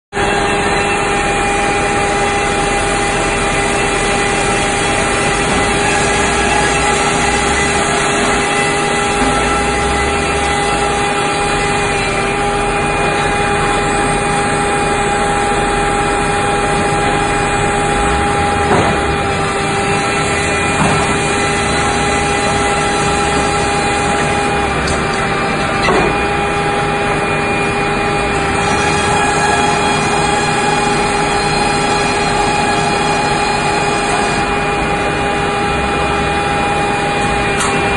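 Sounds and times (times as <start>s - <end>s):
circular saw whining: 0.2s - 37.9s
sharp knocks: 18.6s - 19.3s, 20.7s - 21.4s, 24.8s - 26.3s.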